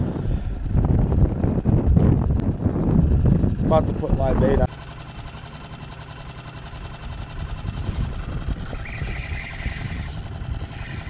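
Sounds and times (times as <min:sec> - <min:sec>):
wind buffeting microphone: 0:00.0 - 0:04.7, 0:07.3 - 0:11.0
outboard motor idling: 0:00.0 - 0:11.0.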